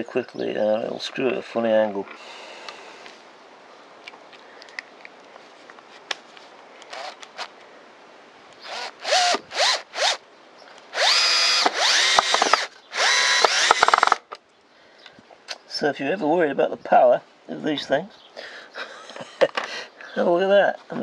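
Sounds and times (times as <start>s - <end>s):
cordless drill driving screw: 6.9s - 7.5s, 8.6s - 10.2s, 10.9s - 14.2s.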